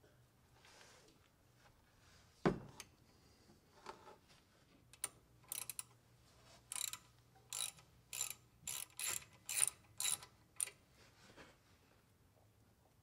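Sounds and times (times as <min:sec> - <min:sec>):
hand ratchet clicking: 0:05.0 - 0:06.0, 0:06.7 - 0:10.8.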